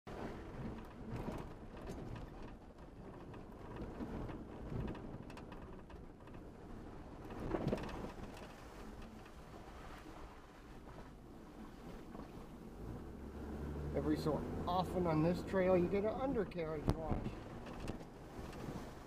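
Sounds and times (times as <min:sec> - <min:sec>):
vehicle knocks and rattles: 0:00.1 - 0:09.4, 0:16.2 - 0:19.0
tyres on mud and gravel: 0:11.8 - 0:19.0.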